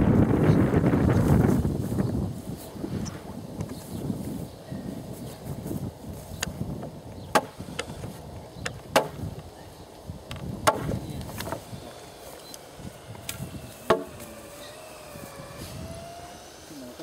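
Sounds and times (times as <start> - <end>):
hammer striking nails into wood: 7.3 - 7.6, 8.9 - 9.2, 10.6 - 11.6, 13.2 - 14.3.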